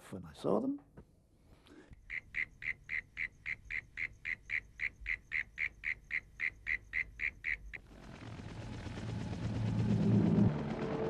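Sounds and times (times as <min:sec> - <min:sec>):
low rumble: 0:07.9 - 0:11.0.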